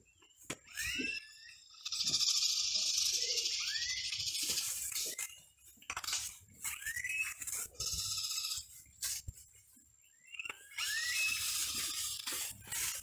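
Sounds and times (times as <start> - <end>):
birds chattering: 0.0 - 13.0
rising whistled bird notes: 2.2 - 4.4, 6.7 - 7.4, 10.2 - 11.7.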